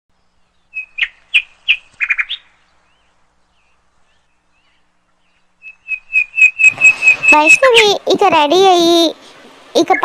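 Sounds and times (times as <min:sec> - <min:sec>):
sharp high bird chirps: 0:00.4 - 0:03.1, 0:04.6 - 0:08.0.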